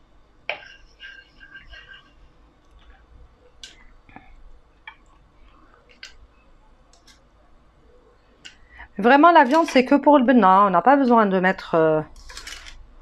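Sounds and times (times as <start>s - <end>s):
wooden spoon scraping a pot: 0.5s - 3.1s, 9.3s - 9.9s.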